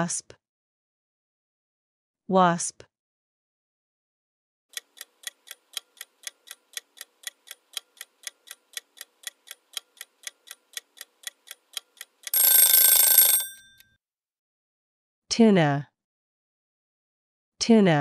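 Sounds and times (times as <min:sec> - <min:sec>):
clock ticking: 0:04.7 - 0:13.6
loud ringing bell: 0:12.4 - 0:13.8.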